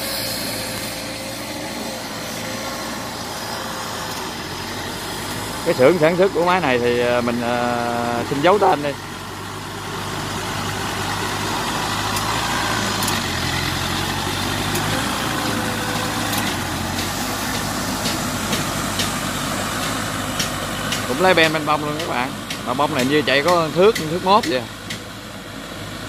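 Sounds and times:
tiller engine running: 0:00.0 - 0:26.0.

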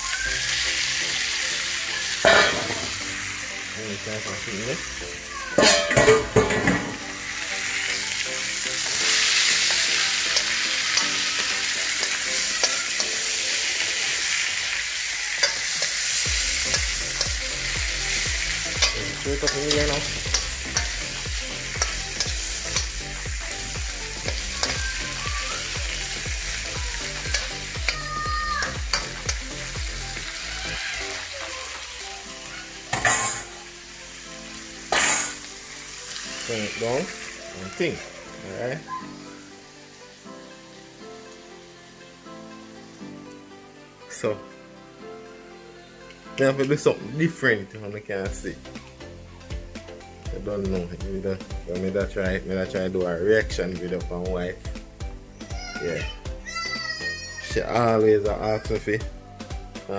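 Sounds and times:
vegetables sizzling in a wok: 0:00.0 - 0:47.3, 0:48.2 - 0:59.9
metal spoon scraping a pan: 0:02.2 - 0:03.0, 0:15.3 - 0:23.0, 0:32.9 - 0:33.6, 0:34.9 - 0:35.5.

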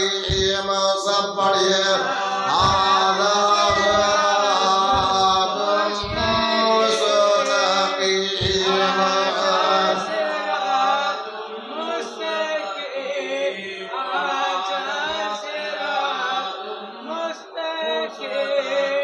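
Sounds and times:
person chanting: 0:00.0 - 0:19.0
low thumps: 0:00.2 - 0:00.8, 0:02.5 - 0:07.0, 0:08.4 - 0:09.0.

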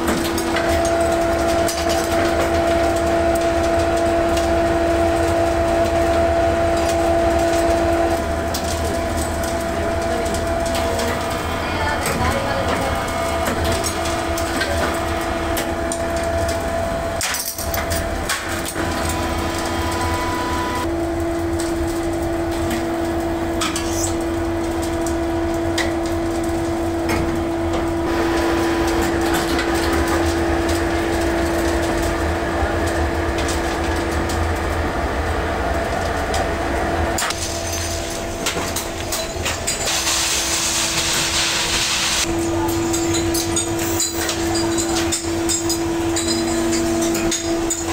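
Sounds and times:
die-casting machine humming: 0:00.0 - 0:47.9
hydraulic drive whine: 0:18.6 - 0:20.9, 0:27.8 - 0:31.0.

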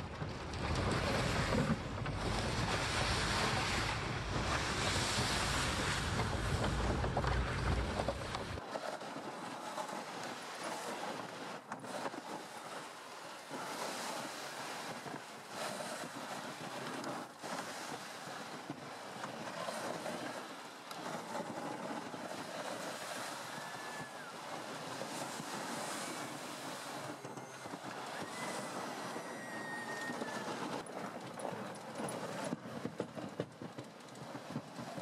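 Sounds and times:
wind on microphone: 0:00.0 - 0:10.8, 0:13.6 - 0:31.6
tracks rushing over snow: 0:00.0 - 0:20.4.

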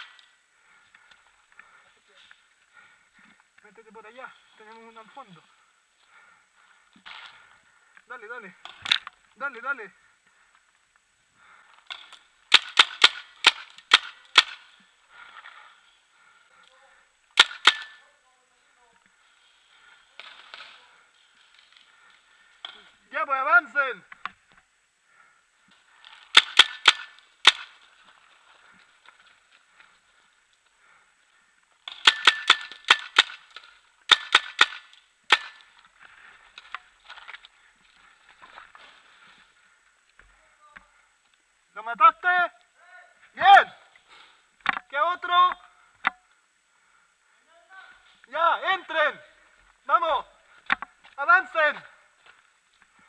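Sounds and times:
paintball marker shots: 0:12.5 - 0:14.6, 0:17.4 - 0:18.0, 0:26.3 - 0:27.8, 0:31.9 - 0:33.4, 0:34.1 - 0:35.6.

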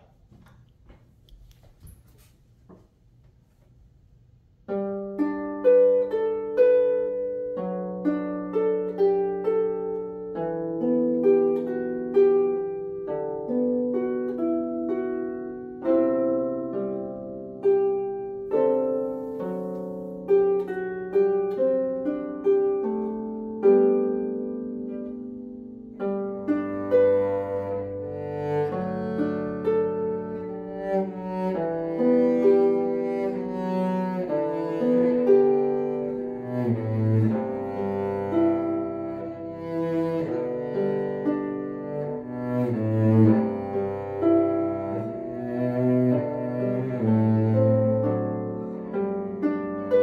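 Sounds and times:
harp playing melody: 0:04.6 - 0:50.0
cello bowed low note: 0:26.8 - 0:50.0.

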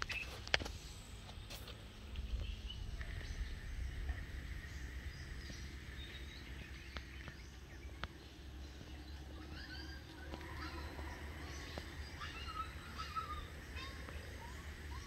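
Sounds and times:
faint birds chirping: 0:00.0 - 0:15.0
low rumble: 0:01.8 - 0:15.0
thin steady high tone: 0:08.3 - 0:15.0.

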